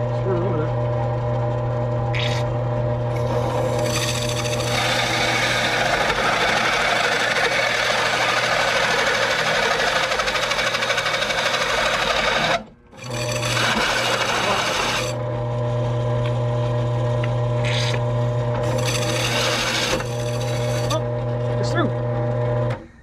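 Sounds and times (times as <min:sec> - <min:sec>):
drill press motor hum: 0:00.0 - 0:22.9
hole saw scraping metal: 0:03.1 - 0:15.2, 0:18.6 - 0:21.0.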